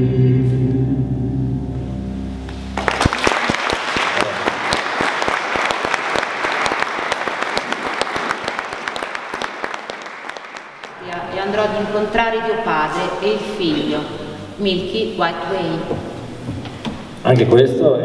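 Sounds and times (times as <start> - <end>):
audience applauding: 2.8 - 11.6.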